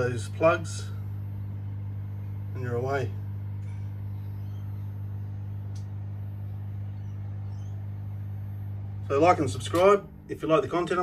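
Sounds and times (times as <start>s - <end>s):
low electrical hum: 0.0s - 11.0s
faint click: 5.7s - 6.0s.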